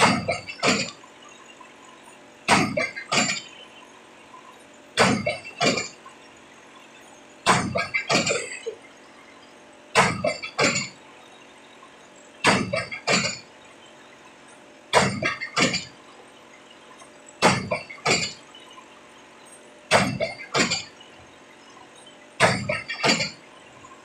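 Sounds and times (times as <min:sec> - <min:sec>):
pile-driving hammer clanging: 0:00.0 - 0:00.9, 0:02.5 - 0:03.5, 0:05.0 - 0:06.0, 0:07.5 - 0:08.5, 0:10.0 - 0:11.0, 0:12.4 - 0:13.4, 0:15.0 - 0:15.9, 0:17.4 - 0:18.4, 0:19.9 - 0:20.9, 0:22.4 - 0:23.4.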